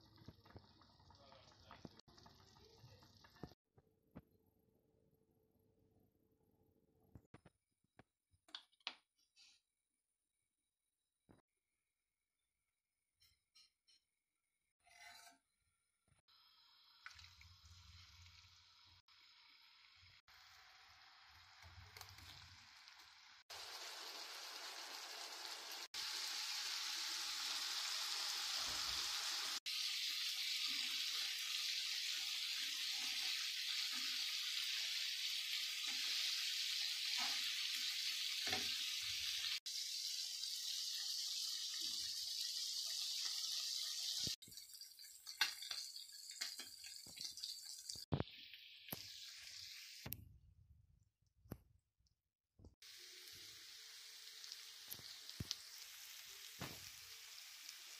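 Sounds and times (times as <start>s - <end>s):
chicken sizzling in frying pan: 16.3s - 50.1s, 52.8s - 57.9s.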